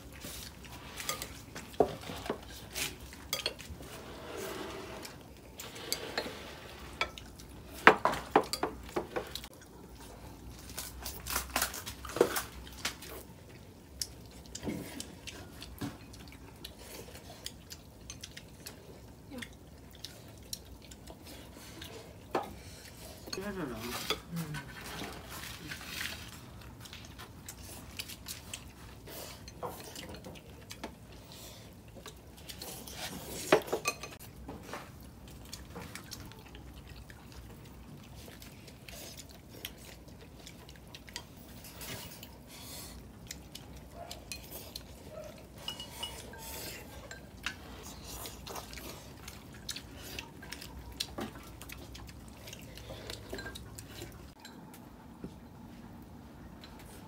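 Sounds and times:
utensils clinking against bowls: 0.9 - 3.9, 32.6 - 34.3, 45.6 - 48.6, 53.0 - 54.6.

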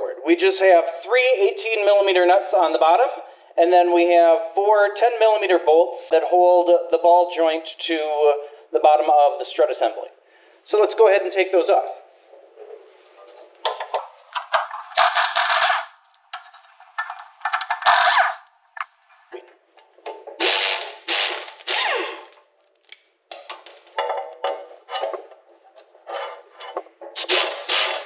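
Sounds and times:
pneumatic impact wrench hammering: 14.4 - 18.9, 20.4 - 22.3, 27.2 - 28.0.

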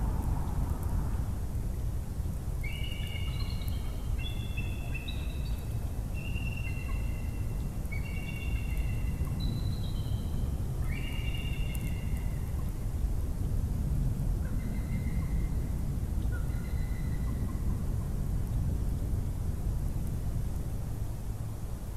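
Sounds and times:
steady low rumble: 0.0 - 6.2.

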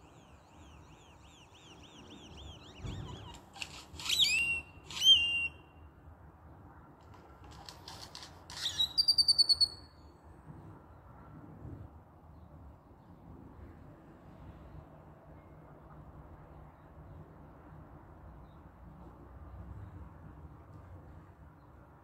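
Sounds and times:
grackle whistles: 0.0 - 5.7, 8.6 - 9.9
fast clicking rattle: 7.0 - 8.6.

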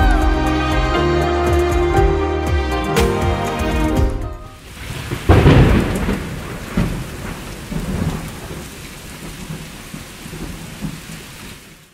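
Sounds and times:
thunder rumbling: 4.6 - 11.3
steady rain: 4.6 - 11.9.

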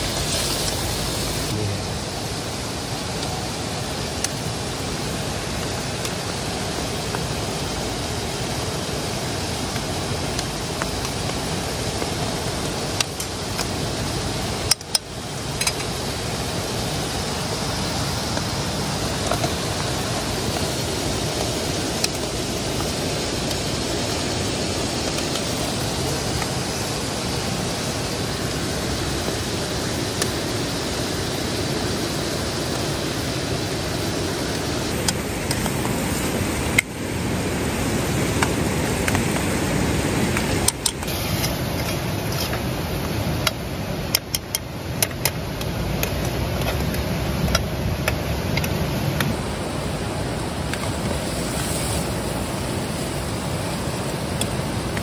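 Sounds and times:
steady rushing noise: 0.0 - 55.0.

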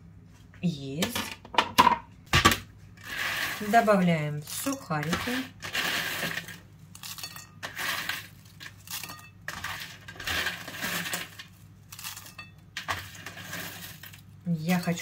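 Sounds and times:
croutons rattling into bowl: 3.0 - 15.0
croutons scraped off baking tray: 3.0 - 15.0.

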